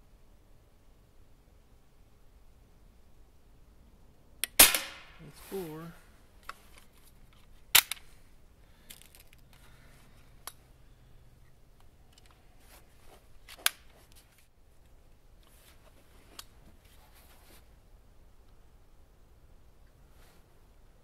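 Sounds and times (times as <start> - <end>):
air rifle metallic clicks: 4.4 - 5.2, 6.4 - 8.1
rustling: 4.8 - 11.2, 12.0 - 17.9, 20.0 - 20.8.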